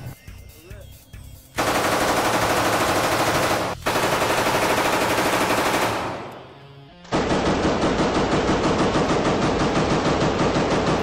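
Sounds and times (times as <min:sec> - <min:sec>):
submachine gun automatic bursts: 0:01.6 - 0:06.3, 0:07.1 - 0:11.0.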